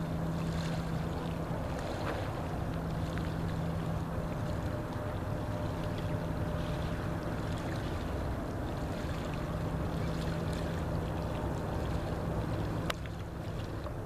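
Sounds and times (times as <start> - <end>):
low engine hum: 0.0 - 14.0
wind and water rushing: 0.0 - 14.0.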